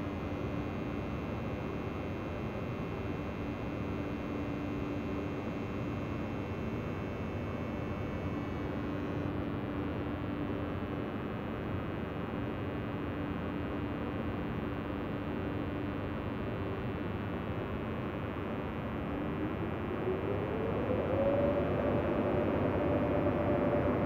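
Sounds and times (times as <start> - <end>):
rising train whine: 18.9 - 24.0.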